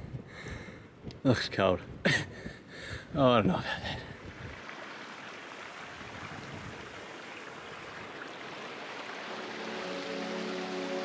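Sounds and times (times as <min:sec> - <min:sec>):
soft sustained music: 0:08.4 - 0:11.0.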